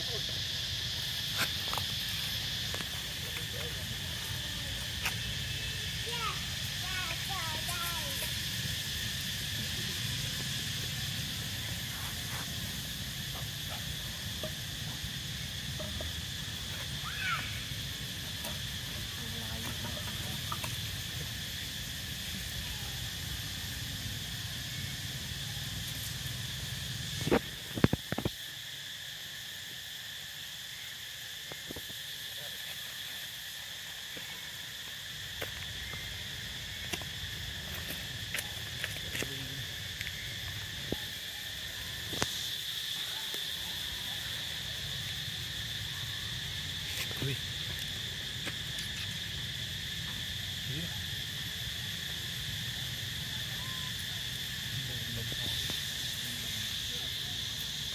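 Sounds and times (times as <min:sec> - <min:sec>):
insect chorus drone: 0:00.0 - 0:57.9.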